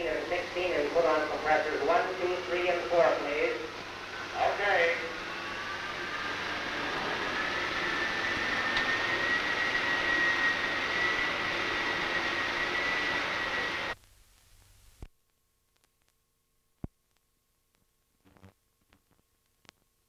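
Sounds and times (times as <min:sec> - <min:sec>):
air compressors roaring: 0:00.0 - 0:14.0.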